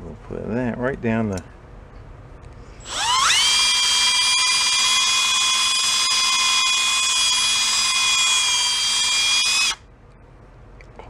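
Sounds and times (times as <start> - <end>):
electric drill whining: 2.8 - 9.8.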